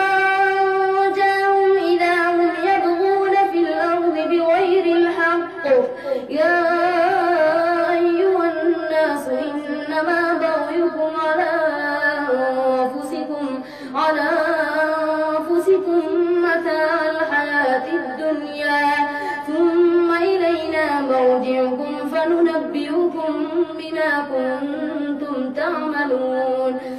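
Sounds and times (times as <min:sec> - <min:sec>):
boy reciting melodically: 0:00.0 - 0:26.9
short breath: 0:05.9 - 0:06.3, 0:13.6 - 0:14.0, 0:19.1 - 0:19.4.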